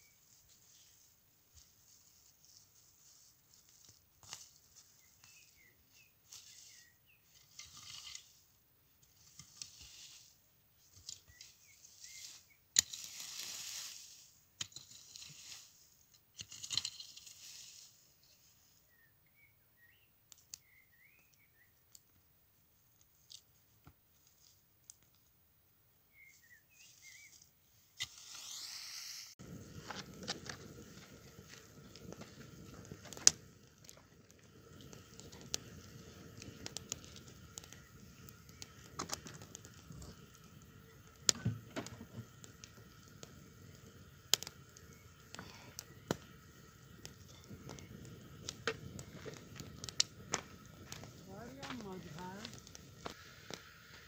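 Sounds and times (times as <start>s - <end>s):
dry leaves rustling: 0.0s - 8.5s, 9.1s - 18.8s, 46.3s - 54.0s
wood fire crackling: 0.0s - 28.8s, 29.4s - 54.0s
bird chirps: 4.9s - 7.3s, 11.2s - 12.6s, 18.9s - 21.8s, 26.1s - 27.5s.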